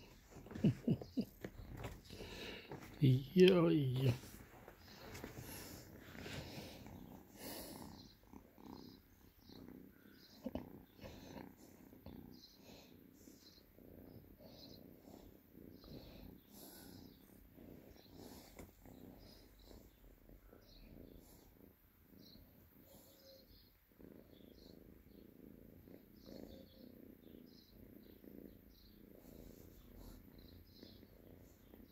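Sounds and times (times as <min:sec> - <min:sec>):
kitten purring faintly: 0:00.0 - 0:31.9.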